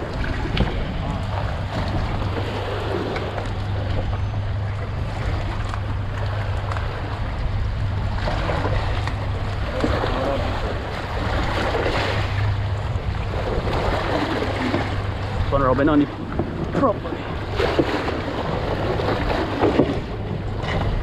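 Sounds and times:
boat engine hum: 0:00.0 - 0:21.0
water splashing against hull: 0:00.0 - 0:21.0
wind on microphone: 0:00.0 - 0:21.0.

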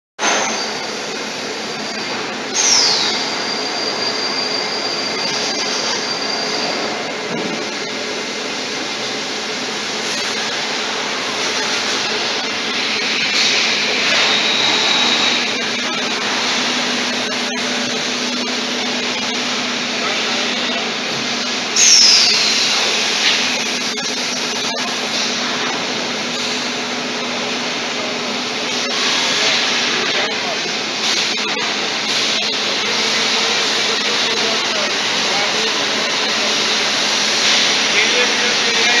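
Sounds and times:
industrial vacuum cleaner sucking: 0:00.2 - 0:39.0
high whistle: 0:01.8 - 0:07.0.

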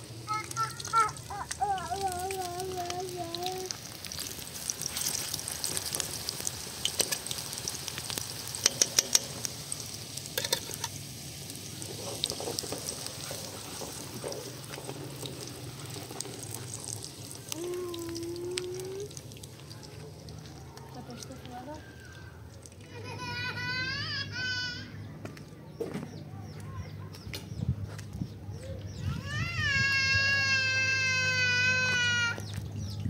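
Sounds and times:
vegetables sizzling in oil: 0:00.0 - 0:22.2.

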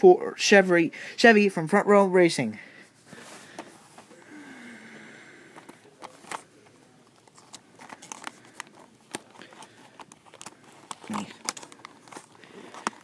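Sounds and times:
cardboard box clicks and crinkles: 0:07.2 - 0:13.0.

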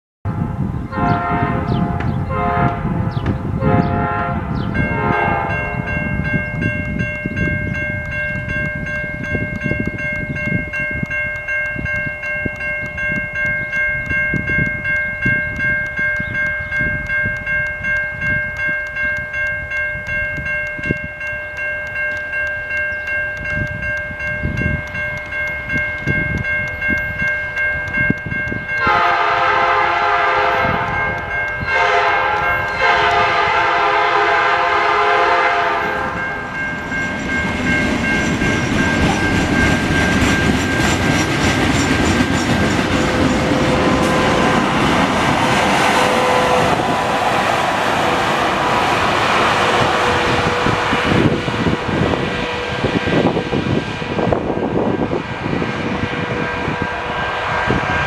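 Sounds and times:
truck horn blasts: 0:01.0 - 0:03.0, 0:03.6 - 0:05.8, 0:28.8 - 0:31.0, 0:31.7 - 0:36.2, 0:46.0 - 0:46.9
crossing bell ringing: 0:01.0 - 0:58.0.

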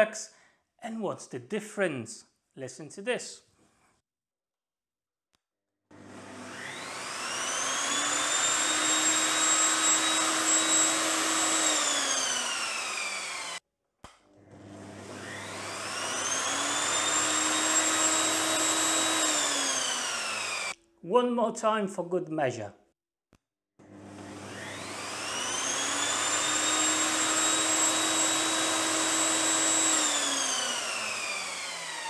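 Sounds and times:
table saw motor whine: 0:05.9 - 0:13.6, 0:14.5 - 0:20.7, 0:23.8 - 0:32.0.

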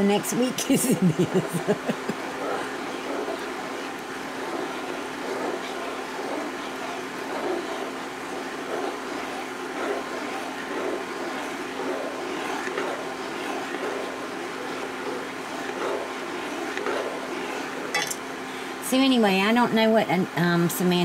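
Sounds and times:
induction cooktop hum: 0:00.0 - 0:21.0
spoon scraping a frying pan: 0:03.4 - 0:18.2.

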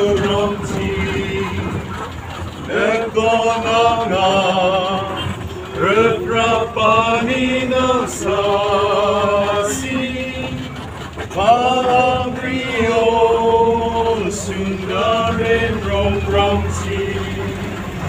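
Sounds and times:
men singing together: 0:00.0 - 0:18.0
moving bus rumble: 0:00.0 - 0:18.0.

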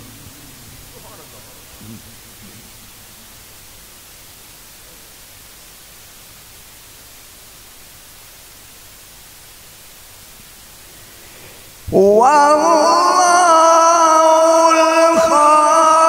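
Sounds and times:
sound system hiss: 0:00.0 - 0:16.0
man reciting melodically: 0:11.9 - 0:16.0.

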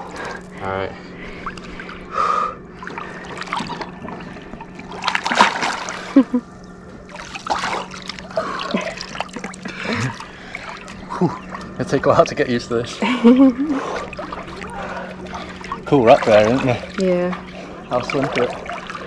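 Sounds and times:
swimming splashes and sloshing: 0:00.0 - 0:19.0.

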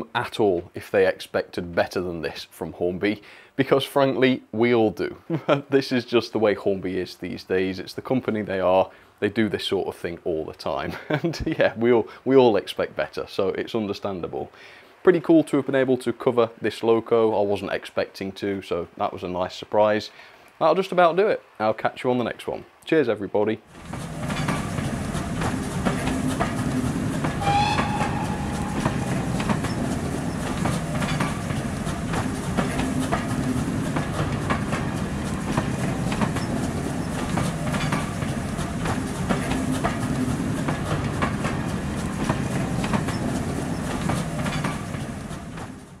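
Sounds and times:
railway carriages rumbling: 0:23.7 - 0:46.0
wheel clicks over rail joints: 0:23.7 - 0:46.0
brief high tone: 0:27.4 - 0:29.9.

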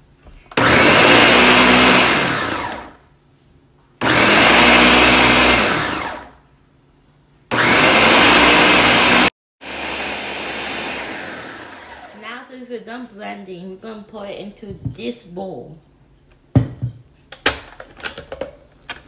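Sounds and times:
blender motor winding down: 0:00.5 - 0:03.0, 0:04.0 - 0:06.3, 0:07.5 - 0:12.2
blender motor running: 0:00.6 - 0:03.0, 0:04.0 - 0:06.3, 0:07.5 - 0:12.2.

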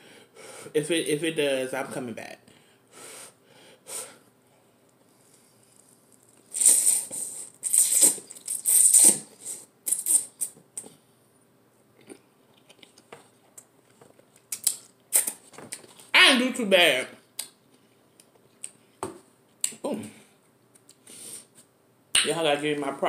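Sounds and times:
person slurping noodles: 0:06.4 - 0:10.6.

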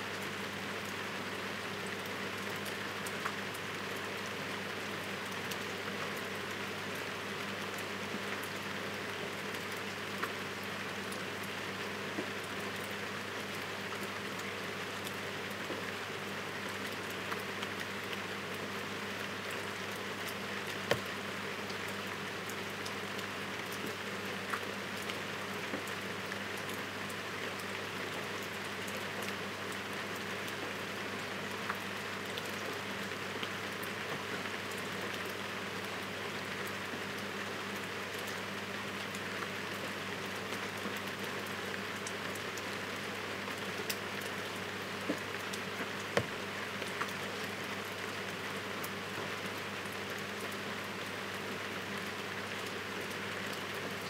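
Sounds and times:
heavy rain falling: 0:29.4 - 0:54.0.

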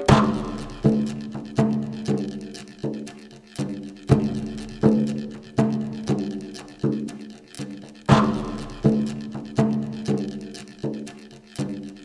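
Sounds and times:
struck percussion hits: 0:00.0 - 0:07.3, 0:08.0 - 0:11.8.

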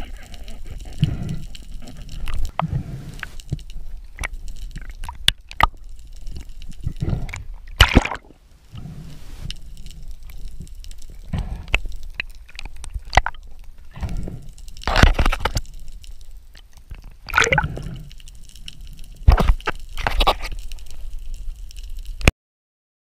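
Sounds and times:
sea water sloshing and gurgling: 0:00.0 - 0:15.7, 0:16.6 - 0:21.1
fish thrashing splashes: 0:07.8 - 0:08.3, 0:17.3 - 0:17.7.

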